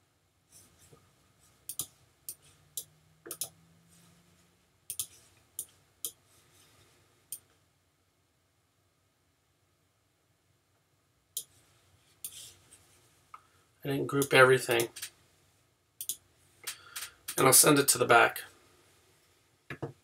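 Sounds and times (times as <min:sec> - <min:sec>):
computer mouse buttons clicking: 0:01.7 - 0:03.6, 0:04.9 - 0:06.2, 0:16.0 - 0:17.4.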